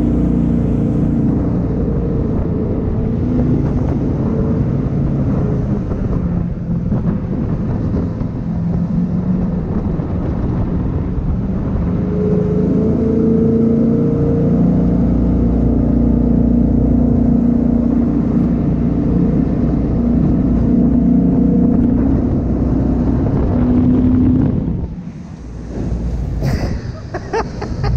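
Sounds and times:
jet boat engine running: 0.0s - 27.9s.

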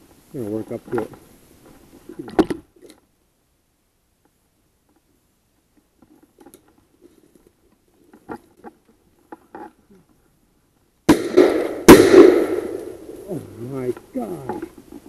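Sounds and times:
shotgun blast: 11.1s - 13.1s.

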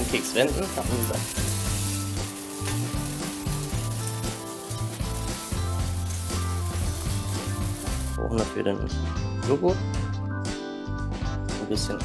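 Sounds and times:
pancakes sizzling in a pan: 0.0s - 8.2s
background music with bass: 0.0s - 12.0s.

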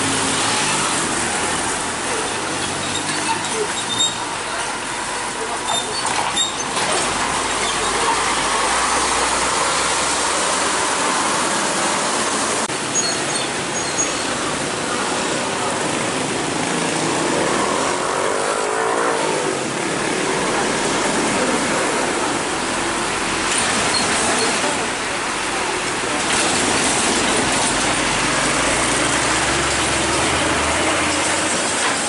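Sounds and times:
diesel trucks engines: 0.0s - 32.0s
motorcycles: 0.0s - 32.0s.

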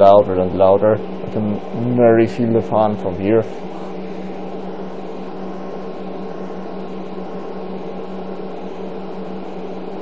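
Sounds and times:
computer fans whirring: 0.0s - 10.0s
low hum: 0.0s - 10.0s.

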